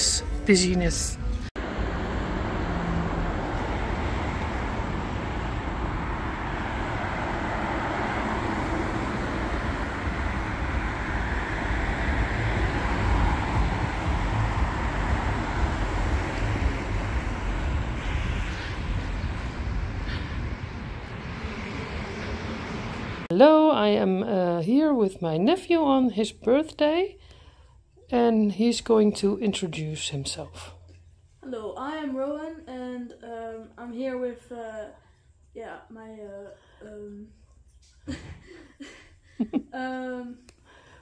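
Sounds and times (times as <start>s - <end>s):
traffic noise: 0.0s - 41.0s
wind rumbling on microphone: 3.3s - 23.3s.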